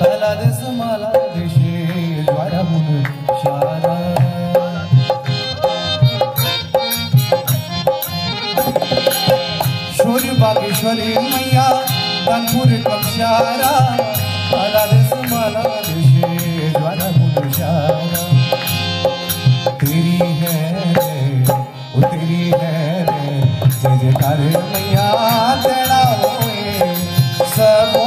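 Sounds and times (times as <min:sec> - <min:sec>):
harmonium melody: 0:00.0 - 0:28.0
hand drum beat: 0:03.5 - 0:21.7
hand claps: 0:15.0 - 0:17.6.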